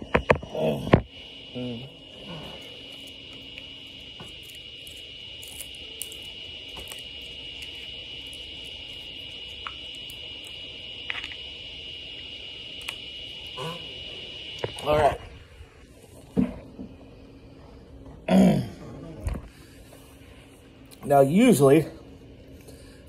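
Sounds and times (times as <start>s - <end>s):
high-pitched whine: 0.0s - 23.0s.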